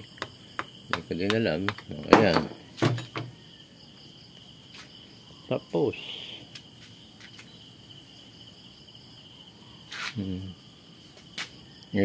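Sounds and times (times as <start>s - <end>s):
high-pitched insect chirring: 3.0s - 12.0s
man murmuring: 10.2s - 10.6s.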